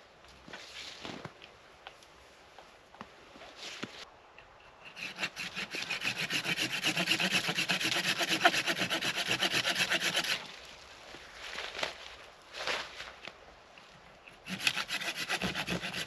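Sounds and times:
handsaw rasping through wood: 4.9s - 10.5s, 14.4s - 16.0s.

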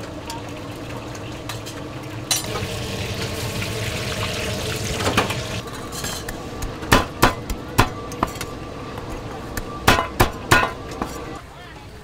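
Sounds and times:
oil sizzling in deep fryer: 0.0s - 5.7s.

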